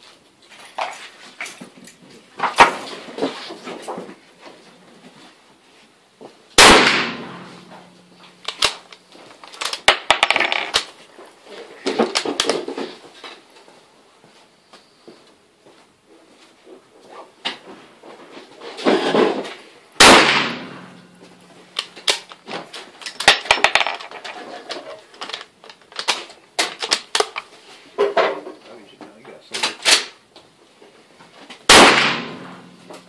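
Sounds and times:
gunshot echoing: 0:06.6 - 0:08.7, 0:20.0 - 0:21.3, 0:31.7 - 0:33.0.

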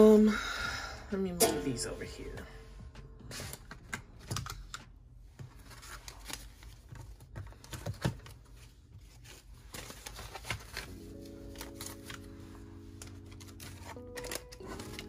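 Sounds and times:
soft background music: 0:00.0 - 0:04.4, 0:09.8 - 0:15.0
banknotes rustling: 0:03.0 - 0:15.0.

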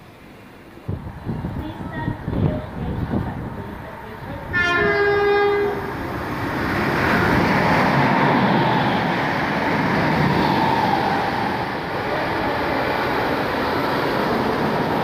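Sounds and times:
train passing with rushing wheels: 0:00.0 - 0:15.0
train horn: 0:04.5 - 0:05.9.

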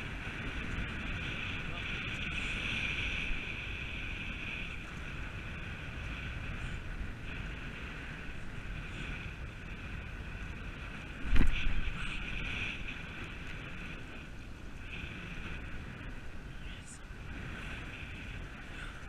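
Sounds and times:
wind rumbling on microphone: 0:00.0 - 0:19.0.

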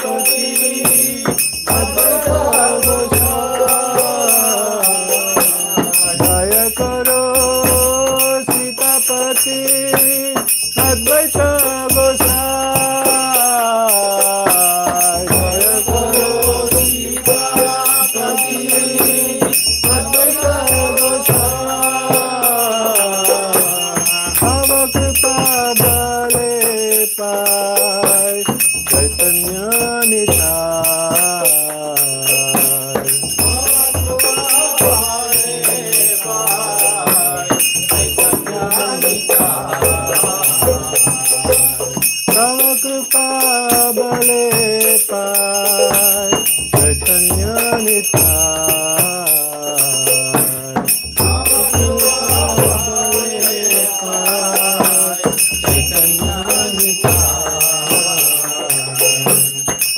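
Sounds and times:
devotional music: 0:00.0 - 0:27.2
hand bell ringing fast: 0:00.0 - 0:59.9.

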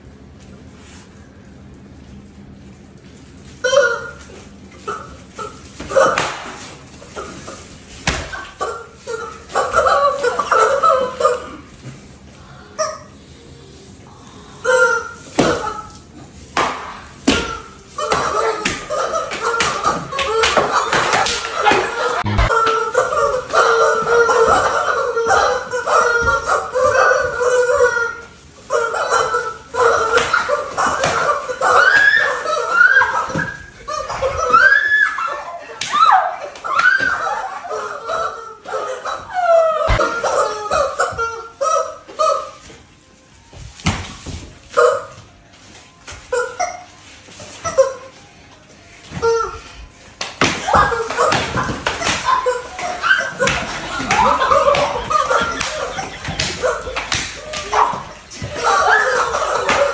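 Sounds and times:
rubber chicken toys squawking: 0:03.6 - 0:11.6, 0:14.4 - 0:16.2, 0:17.2 - 0:42.7, 0:50.6 - 0:59.9
people squealing: 0:03.6 - 0:11.7, 0:14.1 - 0:16.2, 0:17.2 - 0:45.3, 0:46.0 - 0:59.9
sharp slaps: 0:06.1 - 0:06.6
people laughing: 0:07.1 - 0:11.8, 0:17.8 - 0:42.7, 0:50.6 - 0:59.9.

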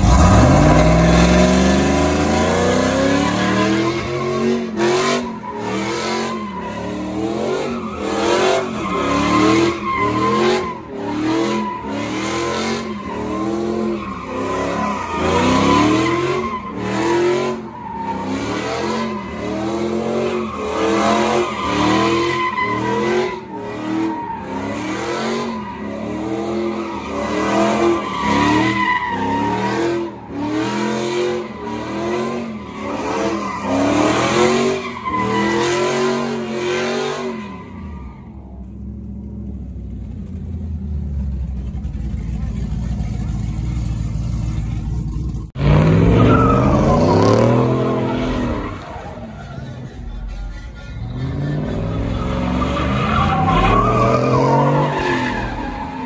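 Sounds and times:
truck engine revving: 0:00.0 - 0:38.1, 0:40.5 - 0:56.0
tires squealing on wet pavement: 0:00.0 - 0:38.4, 0:45.6 - 0:56.0.

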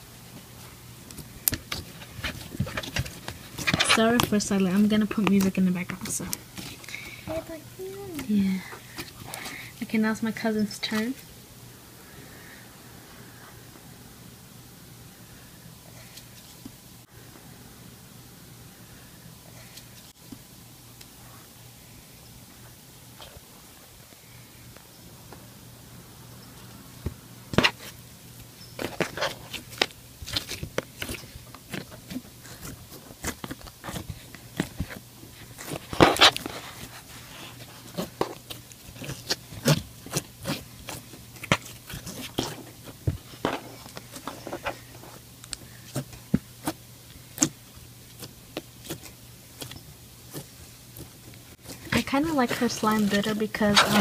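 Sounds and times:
faint low hum: 0:00.0 - 0:54.0
slime squishing and popping: 0:38.0 - 0:42.5.

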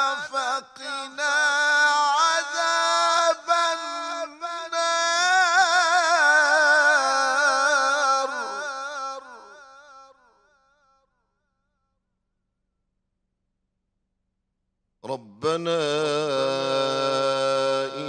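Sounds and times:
man reciting melodically: 0:00.0 - 0:10.1, 0:15.0 - 0:18.0.

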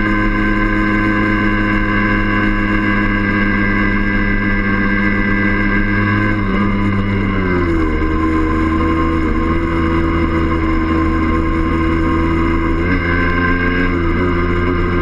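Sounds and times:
two-stroke motorcycle engine running: 0:00.0 - 0:15.0.

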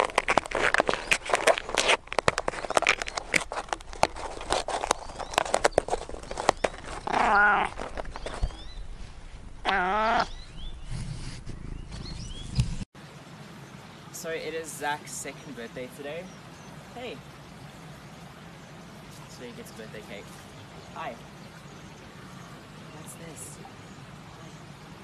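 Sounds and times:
cat yowling: 0:09.7 - 0:10.3.

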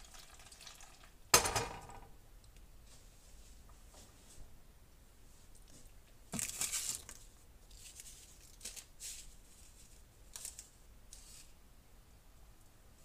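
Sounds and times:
wrapper crinkling: 0:06.3 - 0:11.5
wrapper tearing: 0:06.4 - 0:09.0.

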